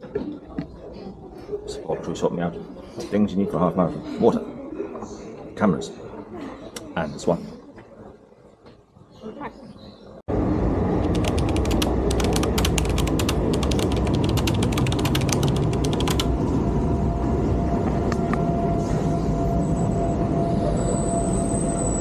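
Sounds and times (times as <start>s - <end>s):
train rumble: 10.3s - 22.0s
rapid train clicks: 11.0s - 16.3s
faint high whine: 16.5s - 22.0s.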